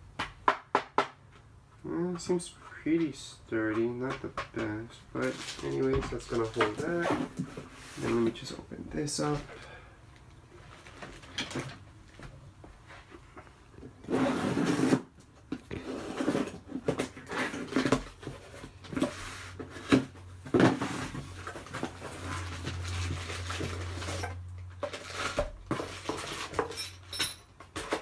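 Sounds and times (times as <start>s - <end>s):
plastic crinkling: 5.1s - 7.0s
cardboard scraping and rustling: 5.2s - 8.6s, 12.8s - 26.7s.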